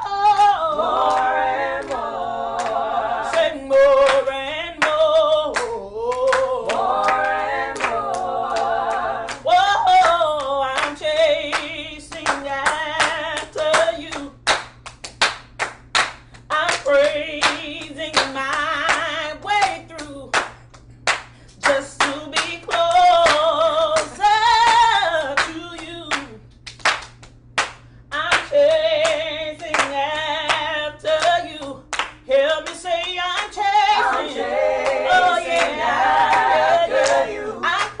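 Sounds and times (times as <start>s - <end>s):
voices singing a cappella: 0.0s - 14.4s, 28.5s - 38.0s
hand clapping: 0.2s - 38.0s.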